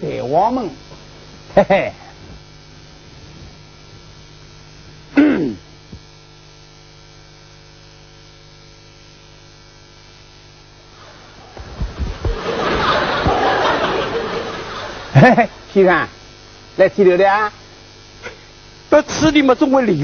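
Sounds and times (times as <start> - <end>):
steady low hum: 0.0 - 20.0
low knocks: 11.6 - 12.6.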